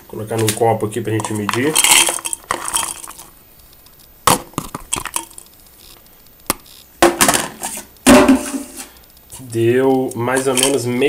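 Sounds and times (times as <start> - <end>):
beans clattering into plastic cup: 0.3 - 3.3.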